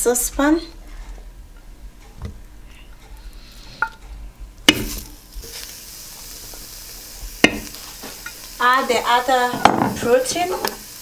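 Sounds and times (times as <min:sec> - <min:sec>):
food sizzling in a saucepan: 0:04.6 - 0:11.0
knock on saucepan: 0:07.4 - 0:07.8, 0:09.5 - 0:10.1.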